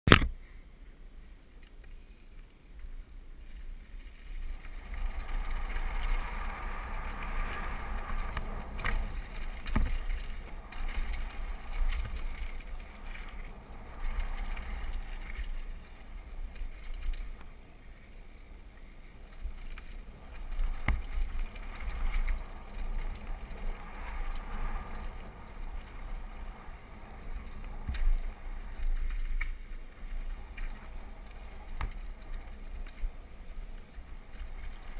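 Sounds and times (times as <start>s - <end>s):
bike tyres rolling over dirt: 1.4s - 34.9s
wind buffeting microphone: 3.5s - 34.9s
bike knocking on bumps: 5.3s - 15.9s, 19.6s - 29.8s.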